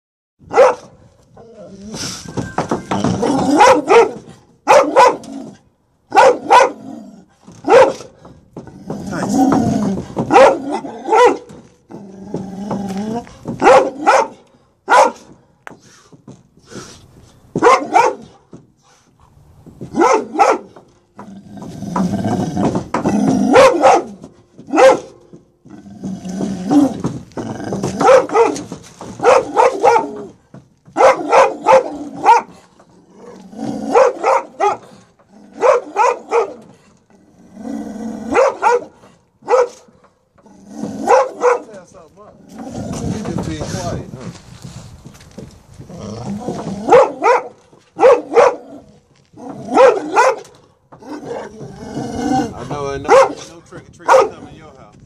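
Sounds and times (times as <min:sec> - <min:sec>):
dog barking: 0:00.5 - 0:01.0, 0:03.2 - 0:05.3, 0:06.1 - 0:06.8, 0:07.6 - 0:08.2, 0:10.2 - 0:11.5, 0:13.6 - 0:15.3, 0:17.6 - 0:18.4, 0:19.9 - 0:20.8, 0:23.5 - 0:25.2, 0:28.0 - 0:30.3, 0:30.9 - 0:32.5, 0:33.9 - 0:34.9, 0:35.6 - 0:36.7, 0:38.3 - 0:40.0, 0:41.0 - 0:41.8, 0:46.8 - 0:48.7, 0:49.7 - 0:50.5, 0:53.1 - 0:53.5, 0:54.1 - 0:54.4
dog growling: 0:08.6 - 0:11.1, 0:11.9 - 0:14.0, 0:21.2 - 0:23.8, 0:33.0 - 0:34.2, 0:34.8 - 0:38.6, 0:42.4 - 0:43.5, 0:45.8 - 0:47.0, 0:48.6 - 0:52.8.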